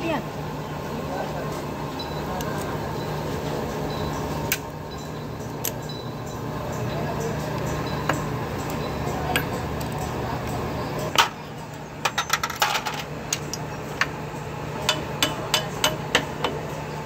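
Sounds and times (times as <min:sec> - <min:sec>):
metal parts clicking and clinking: 0:12.0 - 0:14.1.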